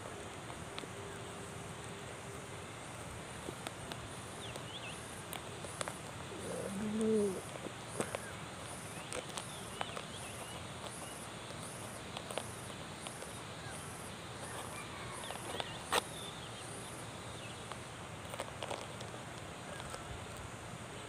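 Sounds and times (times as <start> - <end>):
insect chirping: 0.5 - 21.0
husk cracking and rustling: 2.9 - 16.3, 17.5 - 20.5.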